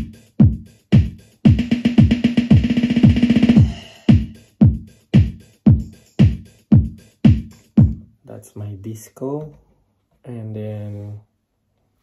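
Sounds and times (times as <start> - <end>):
fast drum machine hits and cymbal hiss: 0.0 - 8.0
drum machine kick: 0.0 - 8.1.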